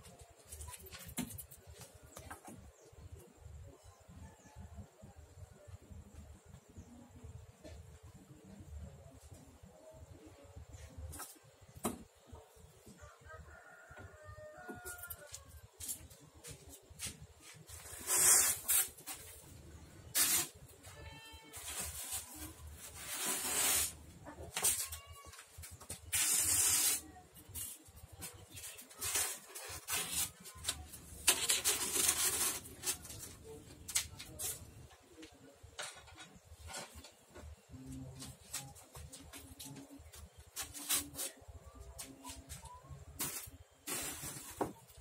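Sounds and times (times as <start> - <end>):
knife scoring styrofoam: 17.0 - 19.3, 20.1 - 20.6, 21.5 - 25.0, 25.9 - 27.8, 28.5 - 33.2.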